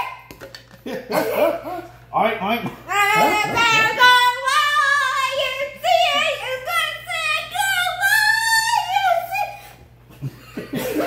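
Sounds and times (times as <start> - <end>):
laughter: 0.7 - 2.0, 10.1 - 11.0
girl singing wordless sing-song: 2.9 - 9.8.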